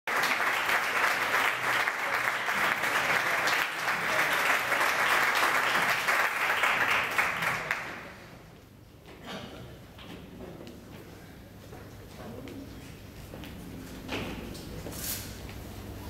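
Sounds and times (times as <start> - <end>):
audience applauding: 0.1 - 8.3.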